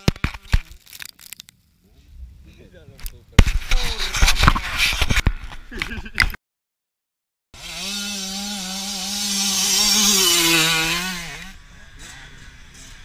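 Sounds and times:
dirt bike engine passing: 7.6 - 13.0.

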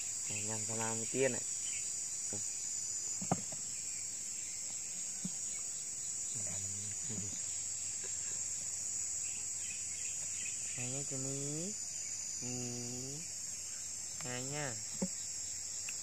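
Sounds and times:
insects trilling: 0.0 - 16.0.

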